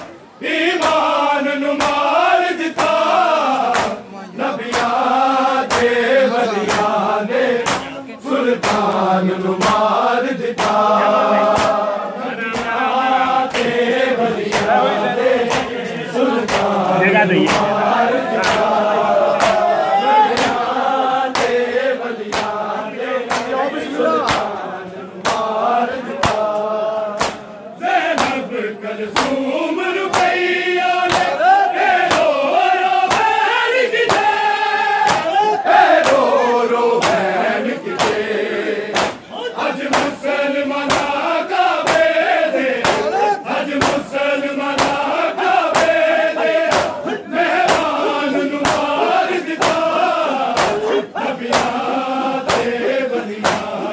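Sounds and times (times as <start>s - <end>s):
men chanting a lament: 0.0s - 53.9s
hands slapping bare chests: 3.6s - 4.0s, 4.7s - 5.0s, 5.7s - 6.0s, 6.7s - 7.0s, 7.6s - 7.9s, 8.6s - 9.0s, 9.6s - 9.9s, 10.6s - 10.9s, 11.5s - 11.8s, 14.5s - 14.8s, 15.5s - 15.7s, 16.4s - 16.8s, 18.4s - 18.8s, 19.4s - 19.7s, 21.3s - 21.7s, 22.3s - 22.6s, 23.3s - 23.6s, 24.2s - 24.6s, 25.2s - 25.6s, 26.2s - 27.4s, 28.1s - 28.4s, 29.2s - 29.4s, 30.1s - 30.4s, 31.1s - 31.4s, 32.0s - 32.4s, 33.1s - 33.4s, 34.1s - 34.4s, 35.0s - 36.3s, 37.0s - 37.3s, 38.0s - 38.2s, 38.9s - 39.2s, 39.8s - 40.2s, 40.9s - 41.2s, 41.8s - 42.2s, 42.8s - 43.2s, 43.8s - 44.1s, 44.8s - 45.1s, 45.7s - 46.0s, 46.7s - 47.0s, 47.6s - 48.0s, 48.6s - 52.8s, 53.4s - 53.8s.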